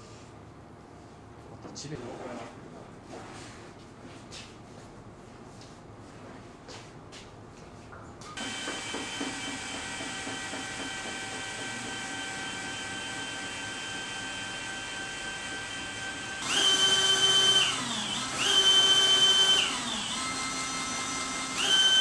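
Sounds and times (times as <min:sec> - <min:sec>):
cordless drill running: 0:08.4 - 0:22.0.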